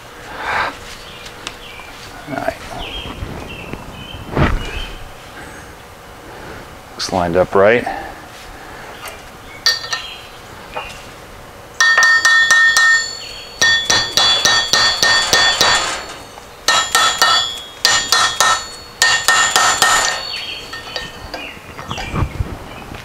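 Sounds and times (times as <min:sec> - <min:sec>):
hammer tapping on metal: 0:11.8 - 0:16.0, 0:16.7 - 0:21.5.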